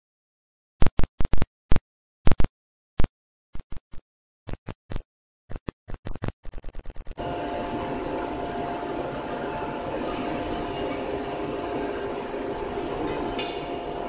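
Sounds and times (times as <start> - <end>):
forging hammer blows: 7.2 - 14.0.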